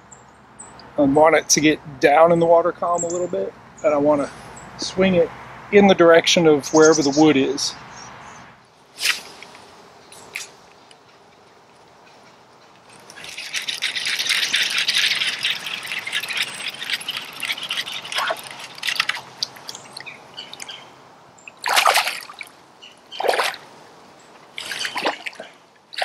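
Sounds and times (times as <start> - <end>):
fish splashing in water: 13.2 - 20.8, 21.5 - 23.7, 24.6 - 26.0.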